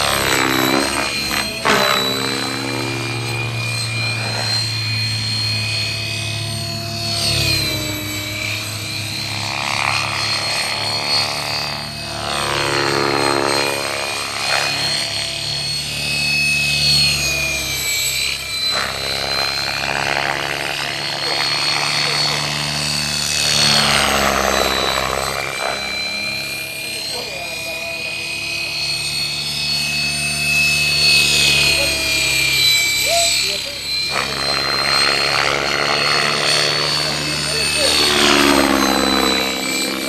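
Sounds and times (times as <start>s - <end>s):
model helicopter rotor whine: 0.0s - 40.0s
steady high tone: 0.0s - 40.0s.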